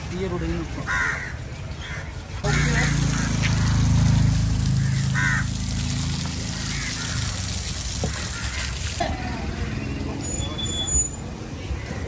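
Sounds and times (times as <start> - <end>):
crows cawing: 0.8 - 4.1, 4.7 - 8.9.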